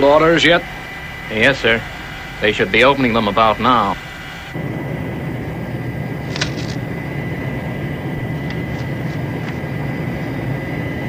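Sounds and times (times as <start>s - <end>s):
aircraft engines droning: 0.0s - 11.0s
faint thin whine: 0.0s - 11.0s
paper crackling: 6.3s - 6.8s.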